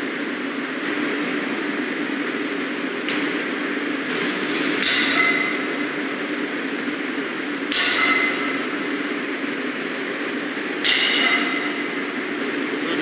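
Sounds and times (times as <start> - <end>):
crane engine droning: 0.0 - 13.0
sharp ringing sounds: 4.8 - 6.0, 7.7 - 8.8, 10.8 - 12.0.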